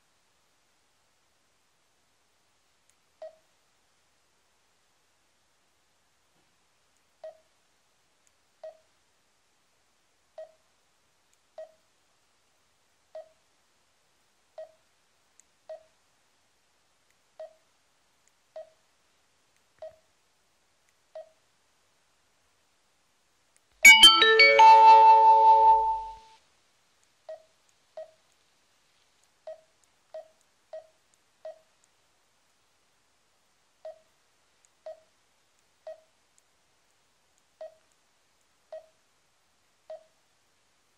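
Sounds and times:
electronic jingle: 23.9s - 26.3s
touchscreen beeps: 23.9s - 26.3s.

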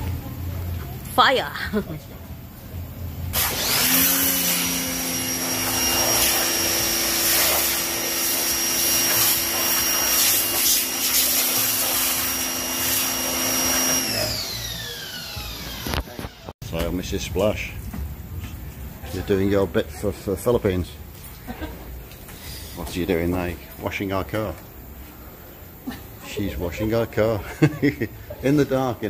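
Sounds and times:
pressure washer motor whine: 3.3s - 16.6s
water jet hissing: 3.4s - 14.3s.

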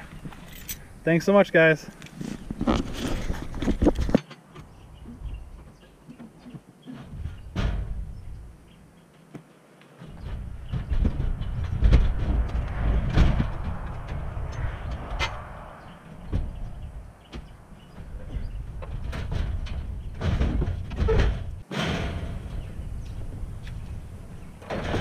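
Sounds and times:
metal clattering and banging: 6.9s - 8.4s, 10.0s - 25.0s.

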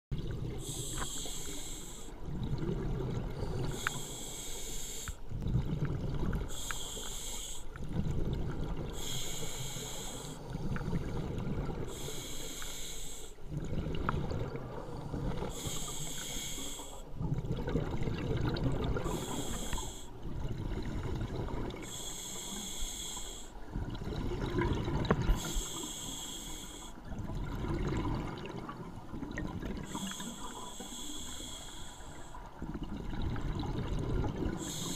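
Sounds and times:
exhaled bubbles rumbling: 0.1s - 1.0s, 2.2s - 3.9s, 5.2s - 6.7s, 7.8s - 9.1s, 10.5s - 12.1s, 13.5s - 15.7s, 17.1s - 19.5s, 20.2s - 21.8s, 23.6s - 25.7s, 27.0s - 30.6s, 32.5s - 34.9s
hissing regulator inhale: 0.6s - 2.2s, 3.4s - 5.2s, 6.5s - 7.8s, 8.9s - 10.7s, 11.9s - 13.4s, 15.4s - 17.1s, 19.0s - 20.2s, 21.8s - 23.6s, 25.3s - 27.0s, 29.8s - 32.5s, 34.6s - 34.9s.

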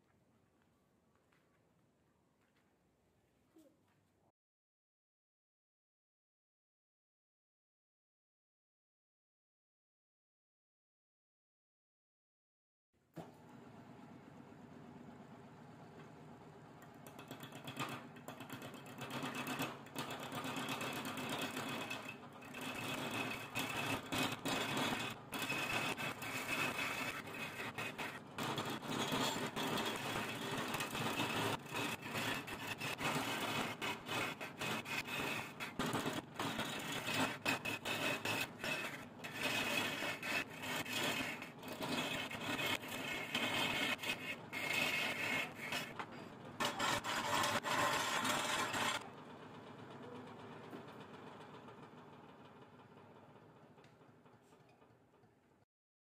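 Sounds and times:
tool scraping wood on lathe: 17.1s - 49.1s
lathe motor running: 21.2s - 46.0s, 46.6s - 49.8s.

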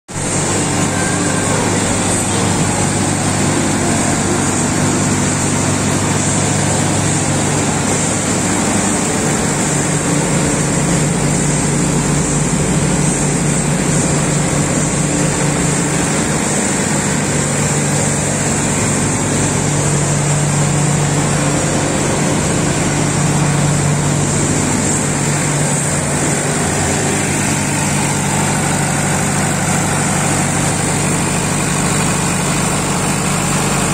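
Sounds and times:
generator engine hum: 0.1s - 33.9s.

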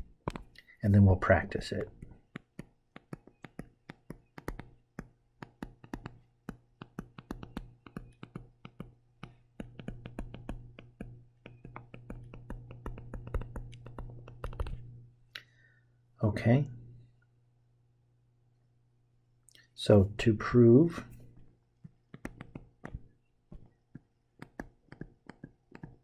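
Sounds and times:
stylus tapping on tablet screen: 0.0s - 0.6s, 1.7s - 14.9s, 21.8s - 26.0s
low steady hum: 0.0s - 26.0s.

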